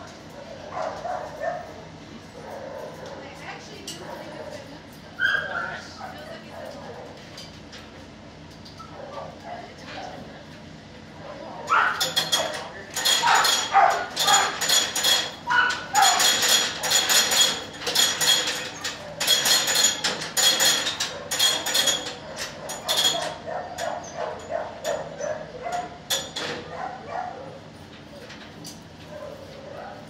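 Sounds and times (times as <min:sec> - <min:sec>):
dogs barking: 0:00.3 - 0:03.4, 0:04.0 - 0:07.2, 0:08.8 - 0:10.1, 0:11.2 - 0:17.6, 0:20.7 - 0:27.7, 0:29.0 - 0:30.0.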